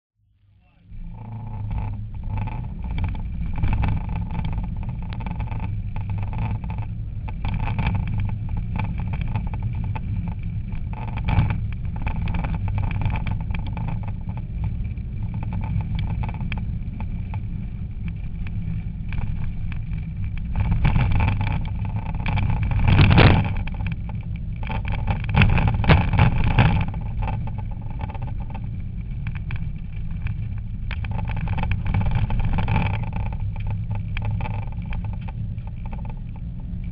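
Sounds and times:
car engine drone from inside: 0.2s - 36.9s
road noise: 0.7s - 36.9s.

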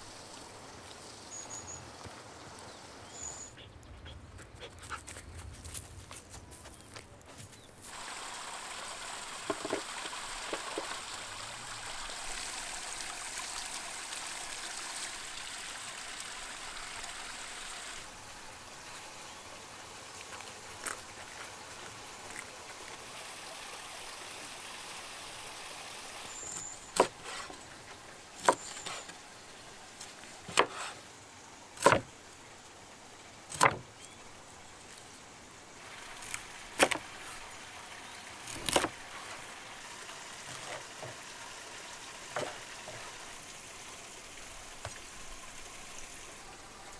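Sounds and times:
rushing hiss: 7.8s - 13.2s
knife chopping fish on wooden board: 31.8s - 32.1s.

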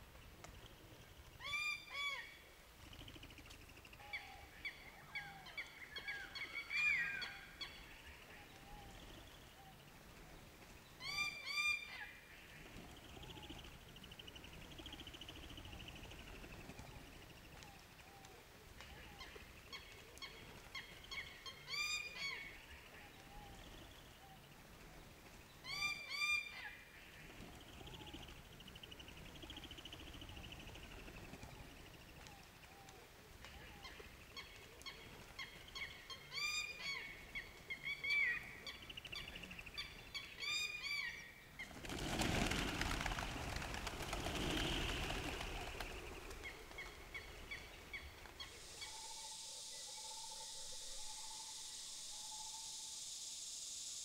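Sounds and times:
pigeons calling: 29.4s - 49.3s
flapping wings: 41.6s - 48.9s
high insect hiss: 41.7s - 54.0s.

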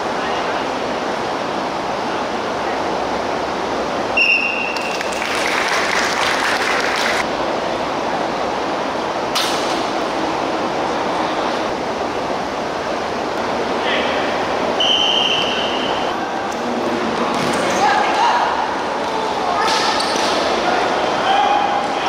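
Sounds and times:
whistle blast: 4.2s - 4.9s, 14.8s - 16.1s
sharp snap: 9.3s - 9.9s.

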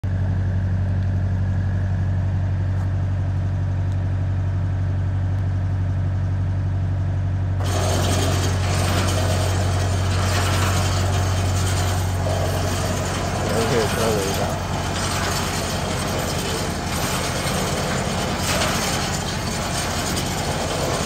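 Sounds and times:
electric motor humming: 7.6s - 21.0s.

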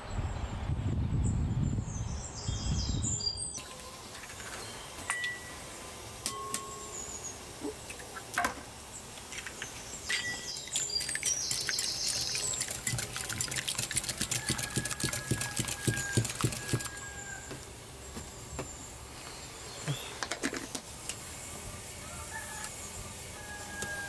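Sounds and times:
whisk clicking against glass bowl: 10.8s - 17.0s.

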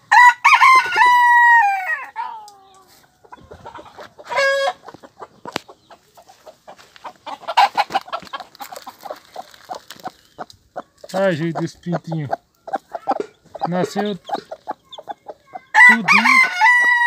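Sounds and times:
rooster crowing: 0.1s - 2.4s, 15.8s - 17.0s
hen clucking: 2.0s - 17.0s.

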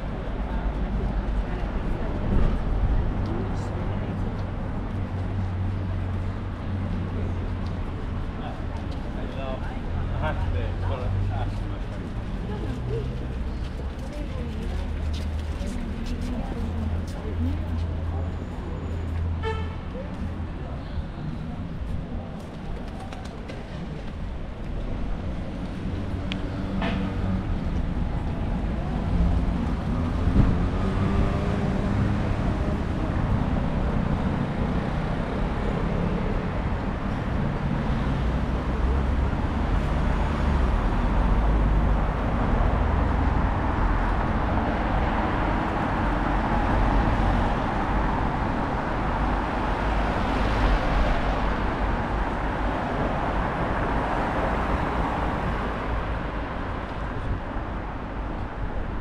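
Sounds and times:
cars driving past: 23.5s - 59.0s.

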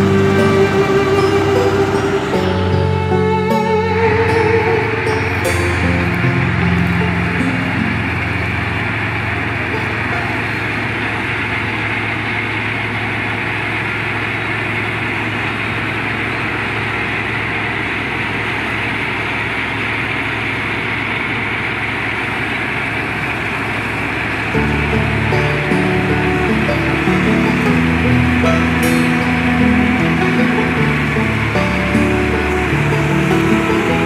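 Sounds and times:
combine harvester running: 0.0s - 34.0s.

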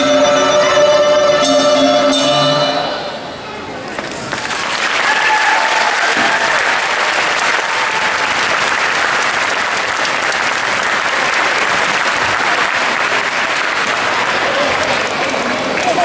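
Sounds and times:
audience applauding: 3.9s - 16.0s.

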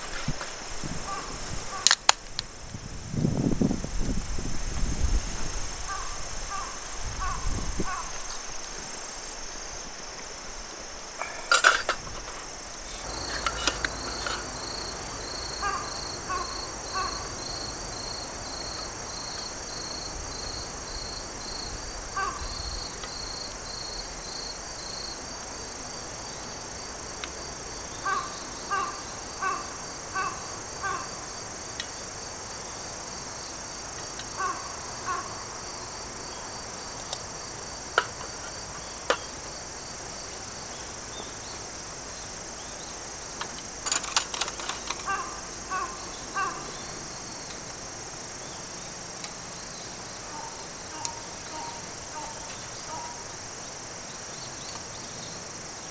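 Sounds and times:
high insect chorus: 0.0s - 55.9s
pulsing insect chirp: 0.0s - 55.9s
harsh bird calls: 5.9s - 8.4s, 12.8s - 18.8s, 22.2s - 22.9s, 27.9s - 31.3s, 34.3s - 35.6s, 44.4s - 47.0s.

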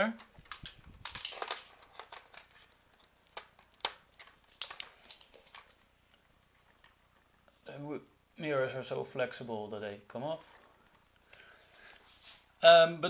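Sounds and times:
plastic toy bricks clicking: 0.5s - 5.7s.

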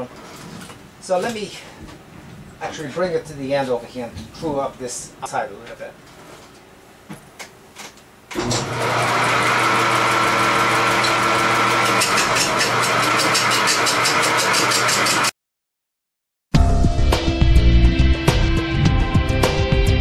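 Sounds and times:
lathe drive hum: 8.3s - 15.3s
turning tool cutting spinning log: 8.3s - 15.3s.

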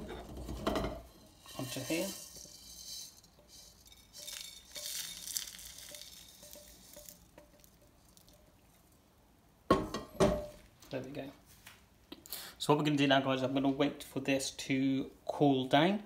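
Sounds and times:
seeds pouring onto a plate: 1.2s - 9.0s.

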